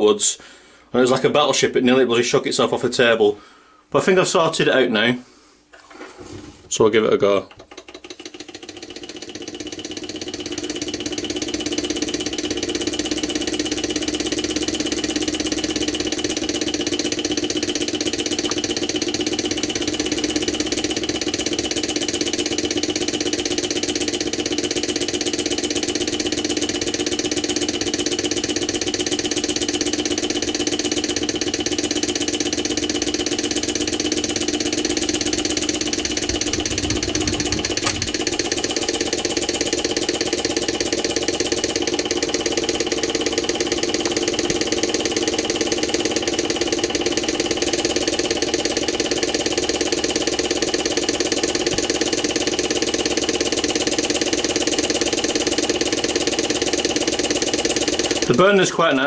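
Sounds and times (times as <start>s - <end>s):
stirling engine mechanical beat: 7.9s - 59.0s
sharp click: 36.2s - 38.4s.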